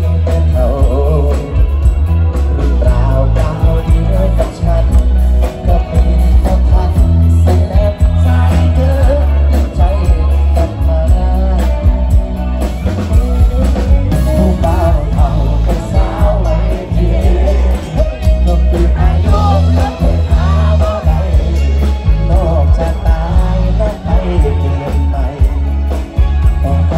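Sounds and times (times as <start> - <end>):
live rock band: 0.0 - 26.9
man singing into microphone: 0.0 - 26.9.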